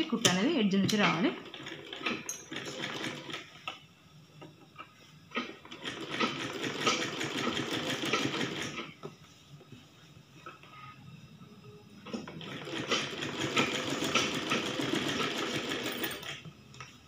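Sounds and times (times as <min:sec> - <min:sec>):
sewing machine stitching: 0:01.0 - 0:03.5, 0:05.4 - 0:08.9, 0:12.1 - 0:16.4.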